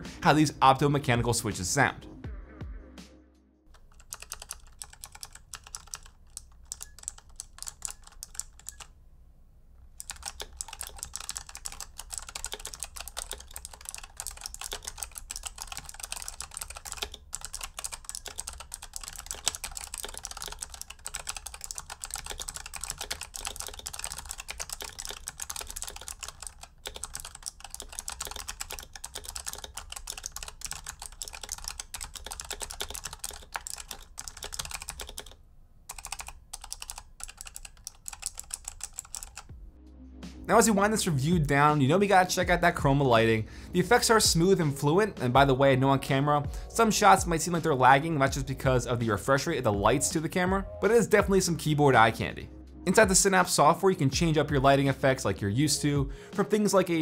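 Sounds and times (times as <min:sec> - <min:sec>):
clicky keyboard typing: 0:03.7 - 0:09.0, 0:10.0 - 0:39.6.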